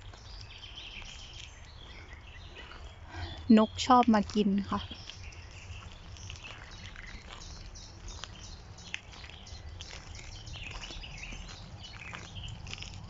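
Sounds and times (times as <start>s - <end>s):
songbirds chirping: 0.0s - 13.0s.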